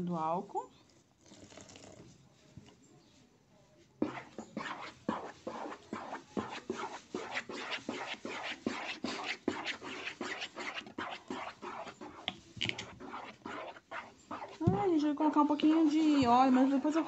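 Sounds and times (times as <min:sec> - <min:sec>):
spatula scraping and sloshing in pan: 0:04.0 - 0:17.0.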